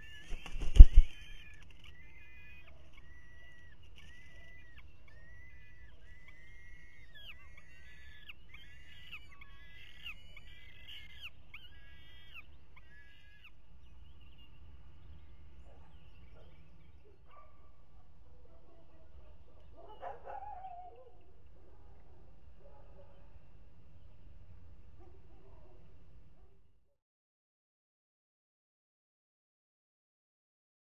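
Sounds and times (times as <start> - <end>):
falcon chicks calling: 0.0 - 17.4.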